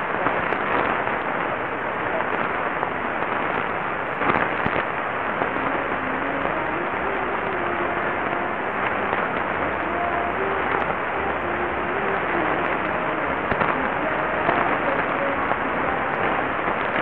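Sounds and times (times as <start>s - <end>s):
faint wavering radio audio: 0.0s - 17.0s
radio static hiss and crackle: 0.0s - 17.0s.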